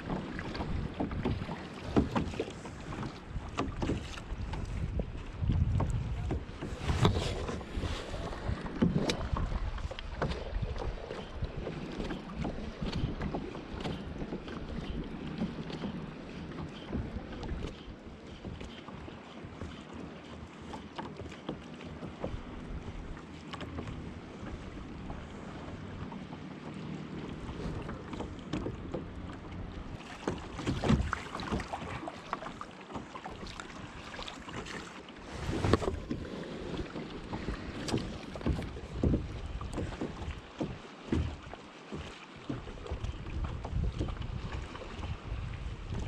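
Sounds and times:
wind on microphone: 0.0s - 15.1s, 35.2s - 40.4s, 42.7s - 46.0s
water lapping against kayak hull: 0.0s - 46.0s.

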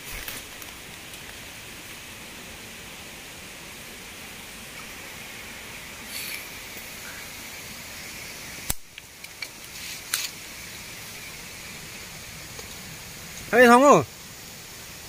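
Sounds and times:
waterfall rushing: 0.0s - 15.0s
sharp click: 8.7s - 9.5s.

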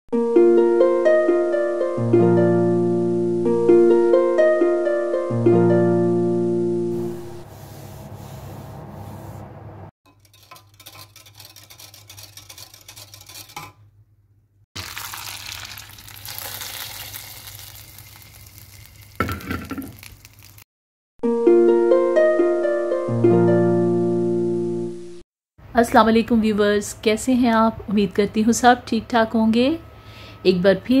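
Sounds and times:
food sizzling in pot: 14.8s - 20.7s.

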